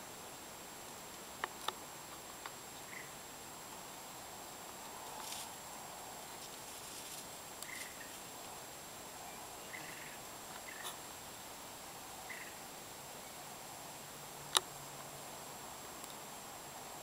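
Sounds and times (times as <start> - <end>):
faint steady hiss: 0.0 - 17.0
faint high chirps: 2.7 - 3.2, 9.2 - 11.0, 12.2 - 12.6.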